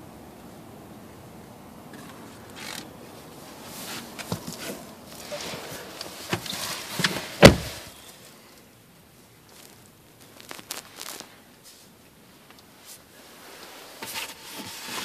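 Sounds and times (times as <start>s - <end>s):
rustling: 1.9s - 15.0s
car door shutting: 6.3s - 7.9s.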